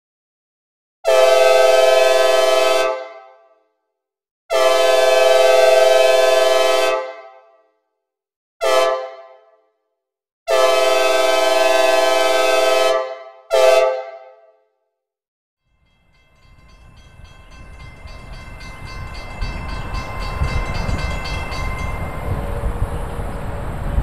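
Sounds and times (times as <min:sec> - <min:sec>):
synthesized train horn blasts: 0:01.1 - 0:03.3, 0:04.5 - 0:07.5, 0:08.6 - 0:09.5, 0:10.5 - 0:14.6.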